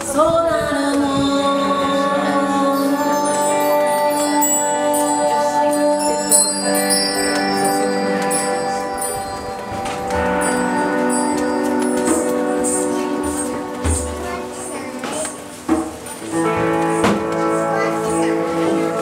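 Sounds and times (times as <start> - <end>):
electric guitar notes: 0.0 - 19.0
bell-like chimes: 2.8 - 14.9.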